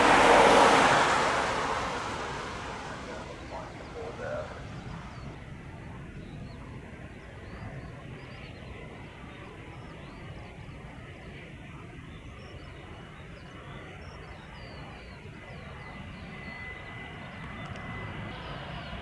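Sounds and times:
faint steady whine: 0.0s - 19.0s
jet engines rumbling: 0.0s - 19.0s.

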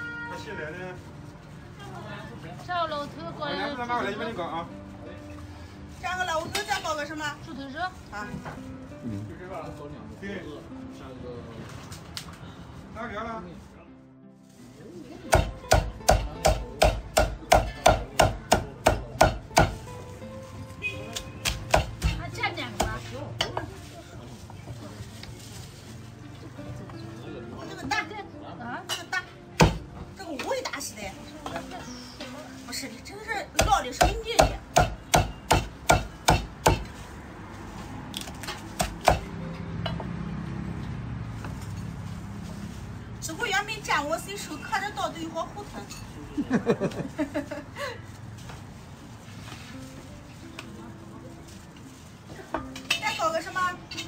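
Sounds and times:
cleaver chopping on wooden block: 15.3s - 19.8s, 21.4s - 22.2s, 33.6s - 36.9s, 38.8s - 39.3s.

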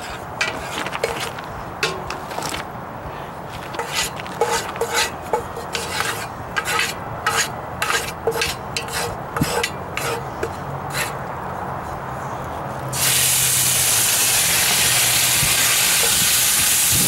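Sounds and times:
wooden spoon scraping pot: 0.0s - 2.7s, 3.5s - 11.2s.

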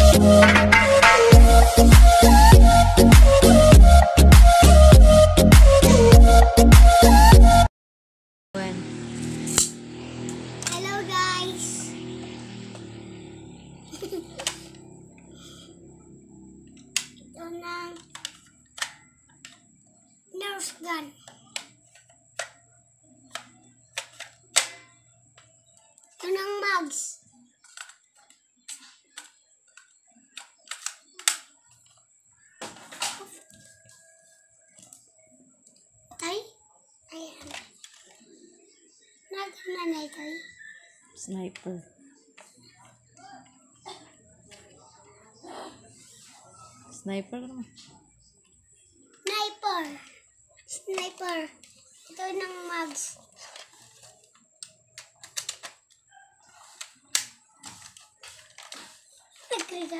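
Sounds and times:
plastic toy gun clicks and clacks: 17.9s - 19.6s, 20.7s - 22.6s, 23.3s - 25.5s, 27.6s - 32.0s, 53.4s - 56.0s, 56.8s - 59.9s.

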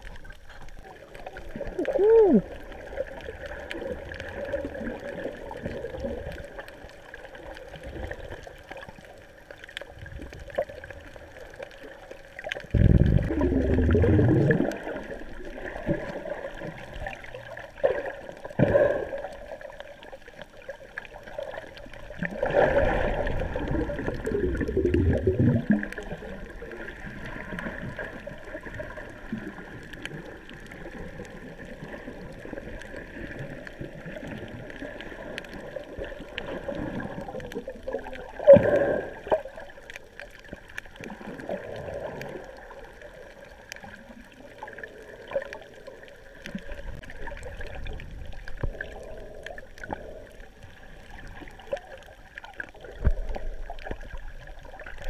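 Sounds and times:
gurgling bursts of bubbles: 0.0s - 55.0s
muffled underwater sound: 0.0s - 55.0s.

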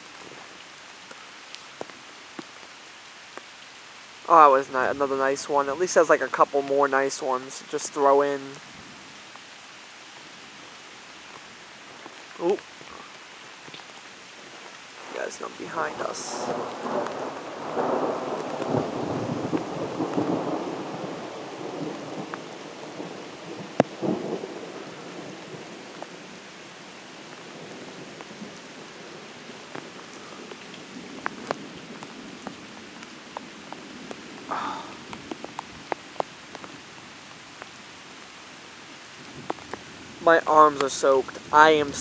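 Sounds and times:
sharp raindrop ticks: 0.0s - 5.4s, 8.4s - 42.0s
heavy rain: 0.0s - 42.0s
thunder rumbling: 15.0s - 26.4s.

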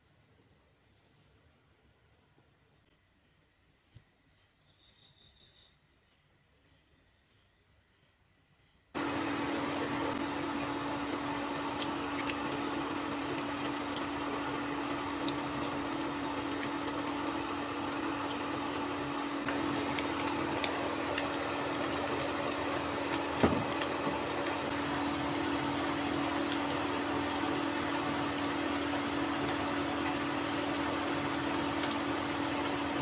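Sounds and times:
deep-frying sizzle with pops: 9.0s - 33.0s.

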